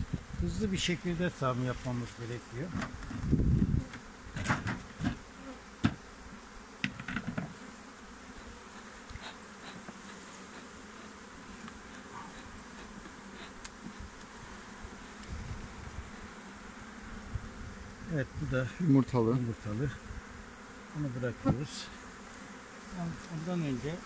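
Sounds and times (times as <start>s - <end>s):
bees buzzing: 0.0s - 24.0s
wooden hive parts knocking: 3.9s - 5.2s, 6.8s - 7.5s.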